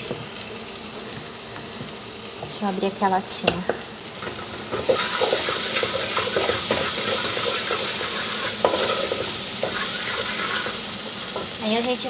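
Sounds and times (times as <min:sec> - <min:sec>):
oil sizzling in a pot: 0:00.0 - 0:12.0
wooden spoon scraping a pot: 0:04.2 - 0:10.8.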